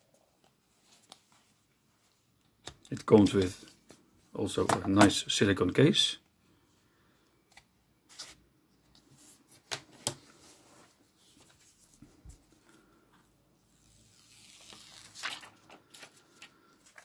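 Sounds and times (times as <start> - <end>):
film peeling rustle: 13.7 - 17.0.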